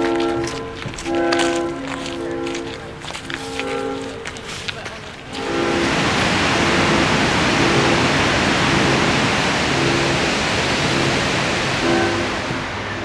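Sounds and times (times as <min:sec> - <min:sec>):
waterfall rushing: 0:05.1 - 0:13.0.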